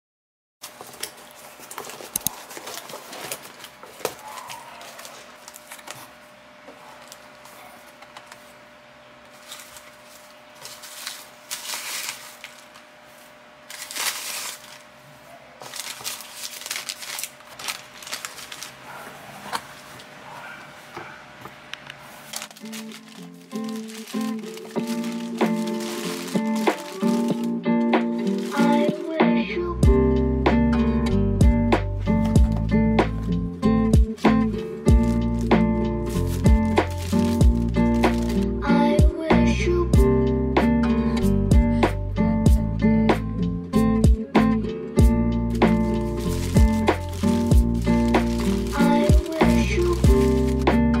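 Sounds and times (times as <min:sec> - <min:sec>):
paper crackles: 0:00.6 - 0:08.6, 0:09.2 - 0:20.9, 0:21.9 - 0:29.2, 0:32.2 - 0:38.5, 0:45.5 - 0:51.0
shredded paper rustling: 0:00.6 - 0:08.6, 0:09.2 - 0:20.2, 0:22.0 - 0:29.2, 0:32.0 - 0:38.6, 0:45.5 - 0:51.0.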